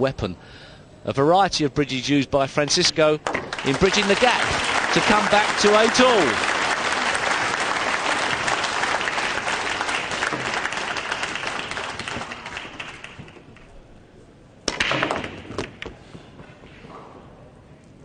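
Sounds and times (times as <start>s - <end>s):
pool balls clattering: 2.8s - 6.4s
audience applause: 3.5s - 13.5s.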